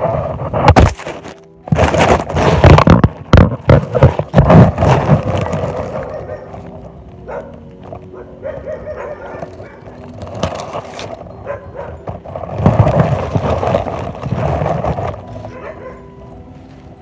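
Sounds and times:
dogs barking: 0:05.3 - 0:10.2, 0:11.3 - 0:12.2, 0:15.4 - 0:16.2.

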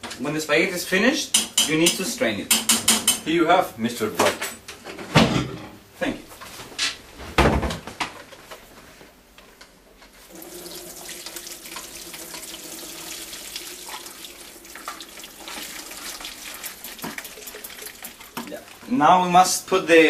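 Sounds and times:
water splashing into steel sink: 0:10.3 - 0:18.9.

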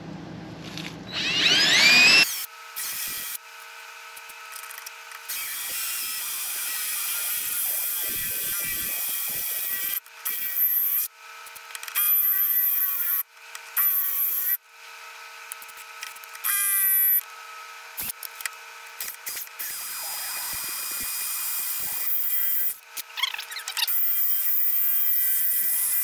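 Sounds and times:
cordless drill boring into steel: 0:01.1 - 0:03.4, 0:05.3 - 0:11.1, 0:12.0 - 0:13.2, 0:13.8 - 0:14.6, 0:16.4 - 0:17.2, 0:19.2 - 0:22.8, 0:23.7 - 0:26.0.

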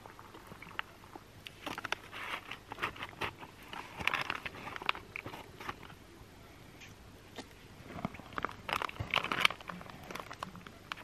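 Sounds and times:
food pouch crinkling: 0:01.5 - 0:06.0, 0:08.2 - 0:11.0.

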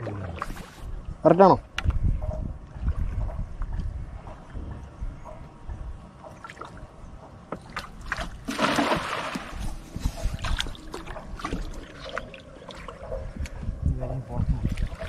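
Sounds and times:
water lapping: 0:02.1 - 0:15.0
cast net splashing into water: 0:07.7 - 0:09.6.

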